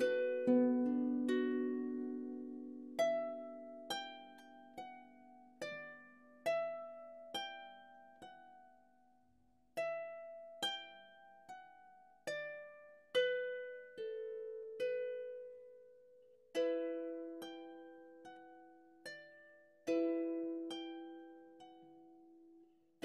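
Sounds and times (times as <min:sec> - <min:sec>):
harp plucked notes: 0:00.0 - 0:08.5.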